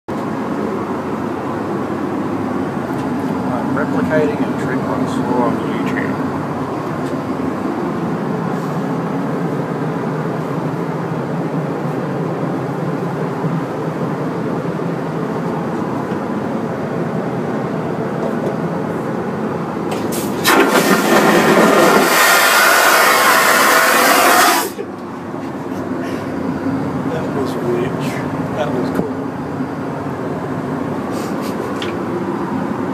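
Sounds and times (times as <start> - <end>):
airliner cabin drone: 0.1 - 32.9
vacuum toilet flushing: 19.9 - 24.8.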